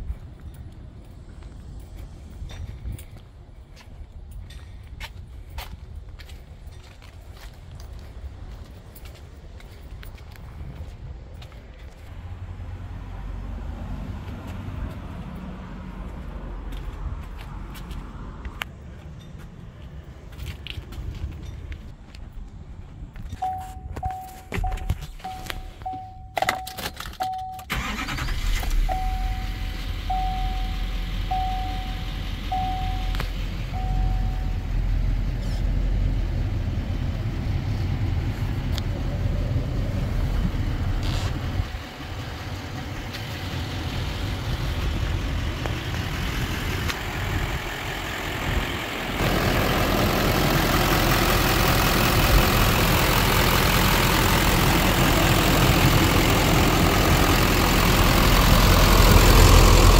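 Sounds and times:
pickup engine starting and idling: 24.6s - 59.9s
warning chime: 28.8s - 34.7s.

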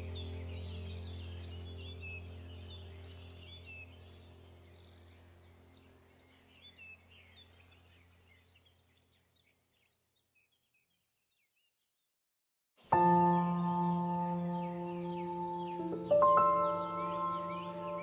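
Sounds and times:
low steady drone: 0.0s - 7.6s, 13.0s - 18.0s
birdsong chirping: 0.0s - 12.1s, 12.8s - 18.0s.

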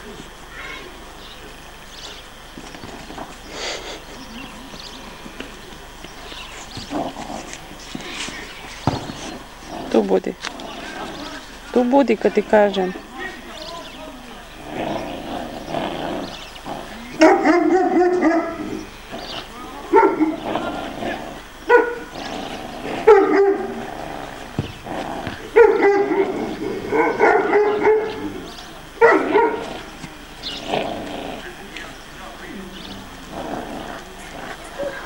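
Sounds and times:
puppy barking: 17.2s - 18.6s, 19.9s - 20.4s, 21.7s - 22.2s, 23.0s - 23.8s, 25.5s - 28.3s, 29.0s - 29.7s.

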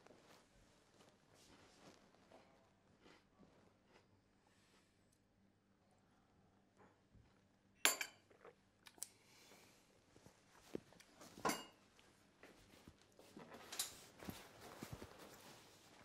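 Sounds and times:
cup clinking on saucer: 7.9s - 8.3s, 11.4s - 11.8s
jacket rustling: 12.6s - 16.0s.

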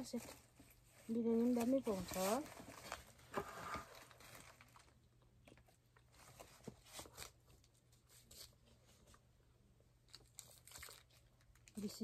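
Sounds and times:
foil container crinkling: 0.0s - 5.6s, 10.1s - 12.0s.

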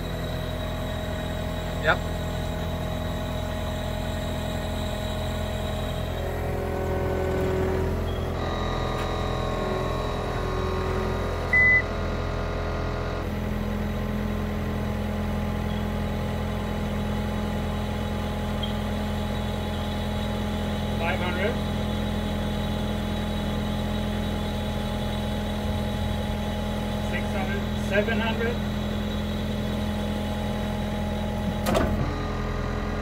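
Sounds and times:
machine engine humming: 0.0s - 33.0s
short electronic beep: 11.5s - 11.9s.

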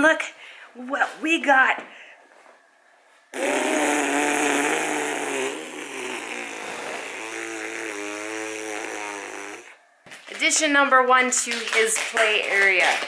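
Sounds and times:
woman blowing buzzing lip trill: 3.3s - 9.8s.

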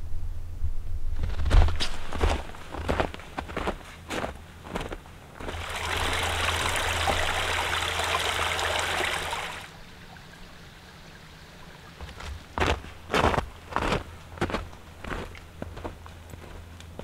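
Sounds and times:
creek trickling and babbling: 4.4s - 17.0s.

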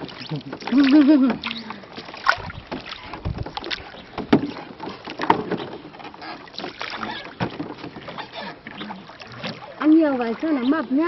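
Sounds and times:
oars splashing water: 0.0s - 11.0s
sharp knocks: 2.7s - 5.8s.

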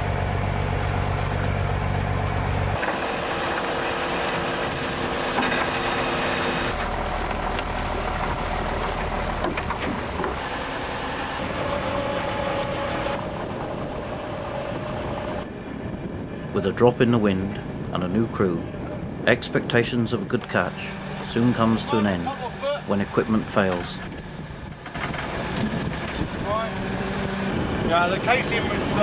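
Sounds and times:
boat engine low hum: 0.0s - 29.0s
hauling gear clicking and knocking: 6.7s - 10.4s.

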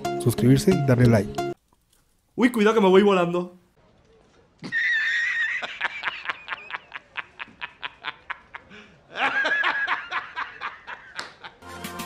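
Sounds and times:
man laughing hard: 4.6s - 11.6s.

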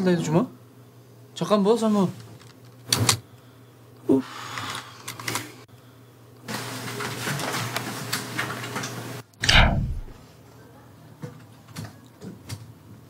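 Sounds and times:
clicking and rustling at desk: 2.1s - 3.2s
short vocal sound: 9.4s - 10.2s.

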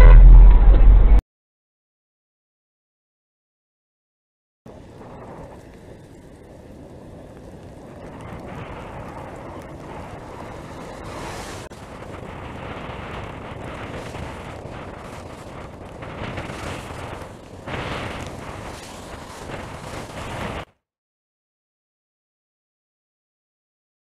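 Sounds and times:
wind buffeting microphone: 4.7s - 20.7s.

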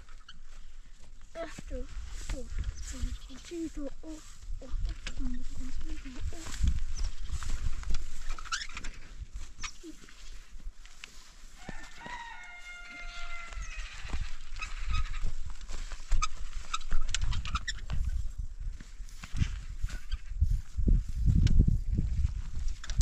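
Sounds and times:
rooster crowing: 11.6s - 14.1s.

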